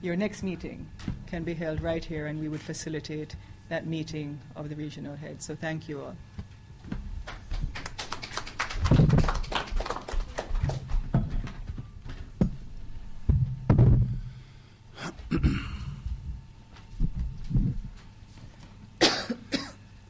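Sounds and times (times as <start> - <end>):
microphone handling thumps: 0.4 - 2.4, 6.3 - 7.8, 8.8 - 9.4, 10.6 - 14.4, 15.2 - 18.6.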